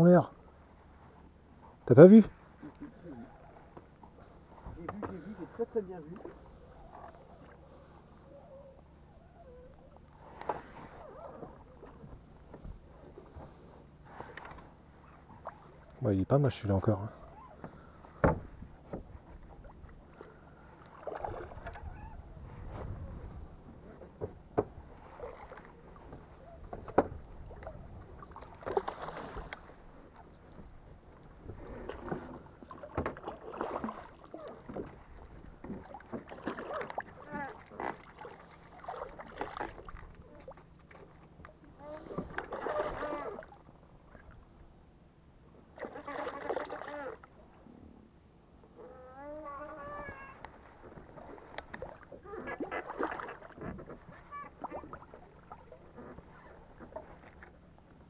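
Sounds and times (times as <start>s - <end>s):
water splashing against boat hull: 17.6s - 44.4s, 45.7s - 47.4s, 49.7s - 58.0s.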